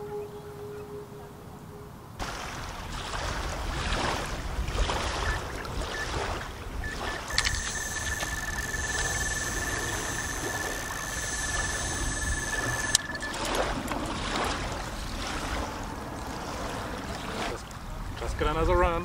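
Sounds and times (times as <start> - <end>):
wind: 0.0 - 19.0
small waves lapping at shore: 2.2 - 18.9
electronic bite alarm beeping: 6.8 - 13.7.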